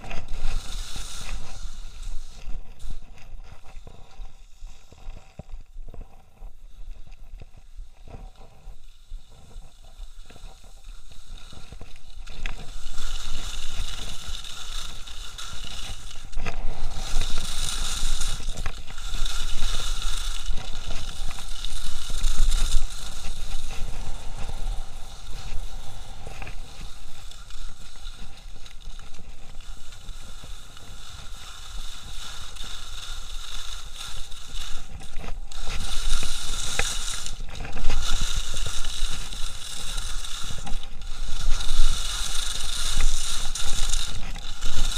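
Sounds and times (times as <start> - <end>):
skis scraping on hard snow: 0.0 - 44.9.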